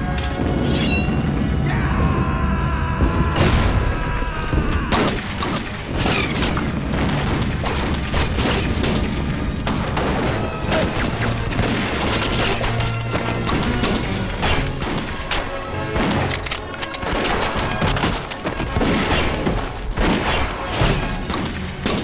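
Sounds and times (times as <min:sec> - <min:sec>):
explosions: 0:00.3 - 0:12.5.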